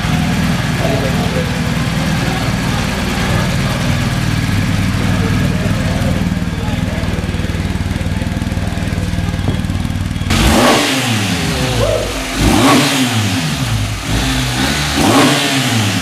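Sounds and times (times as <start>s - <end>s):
motorcycle engine idling and revving: 0.0s - 16.0s.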